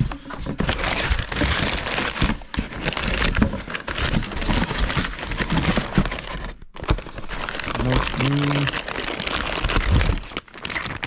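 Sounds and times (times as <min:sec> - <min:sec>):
packing paper crinkling: 0:00.0 - 0:11.0.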